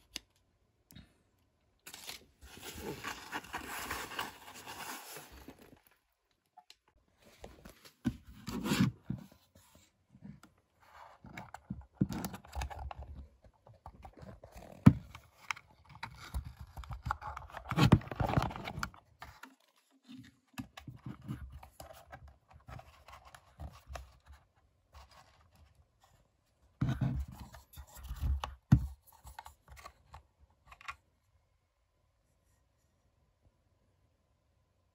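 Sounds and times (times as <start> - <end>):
plastic controller handled: 11.2 - 25.7, 26.8 - 31.1.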